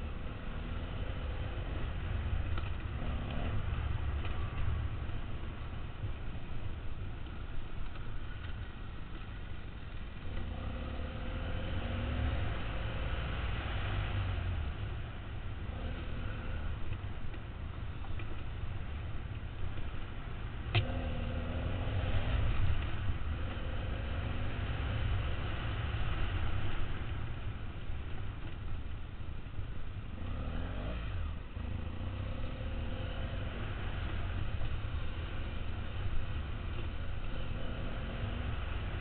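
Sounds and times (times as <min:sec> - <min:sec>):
motorcycle engine revving: 0:20.8 - 0:26.8, 0:30.1 - 0:39.0.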